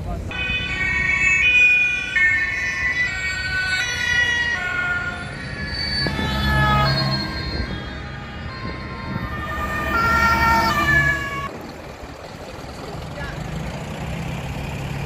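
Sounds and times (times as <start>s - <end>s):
two-tone police siren: 0.3s - 11.5s
vehicle engine passing: 4.5s - 15.0s.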